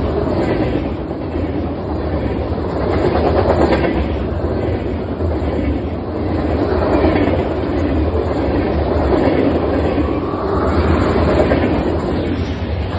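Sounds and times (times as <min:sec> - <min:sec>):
train wheels rolling on rail: 0:00.0 - 0:12.9.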